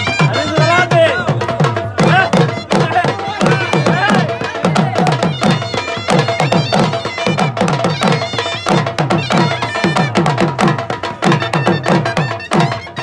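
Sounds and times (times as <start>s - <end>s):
dhol drums beating fast rhythm: 0.0s - 13.0s
held melody line: 0.0s - 13.0s.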